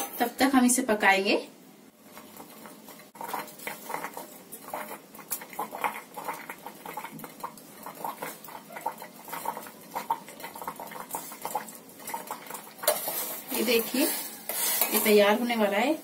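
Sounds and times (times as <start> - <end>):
bubbles popping in simmering liquid: 1.9 - 14.5.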